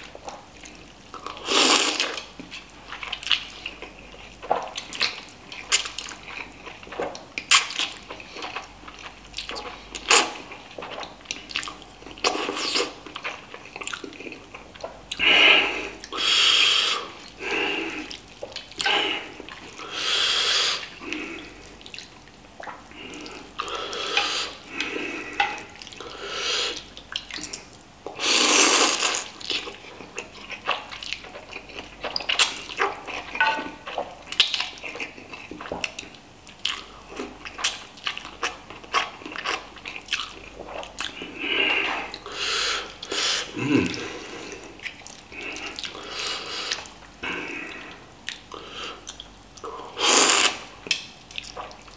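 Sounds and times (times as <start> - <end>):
wet chewing: 0.2 - 15.3, 20.7 - 51.9
person slurping noodles: 1.4 - 2.2, 12.3 - 13.0, 18.8 - 21.3, 23.1 - 25.4, 26.1 - 26.8, 28.2 - 29.3, 49.6 - 50.7.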